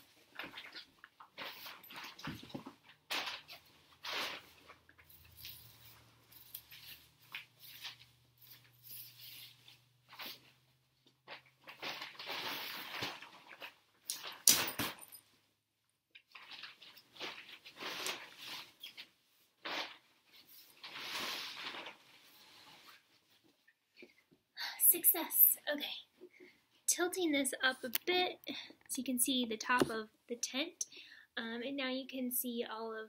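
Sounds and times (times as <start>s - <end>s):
tent fabric rustling: 11.3s - 14.4s, 16.4s - 23.4s.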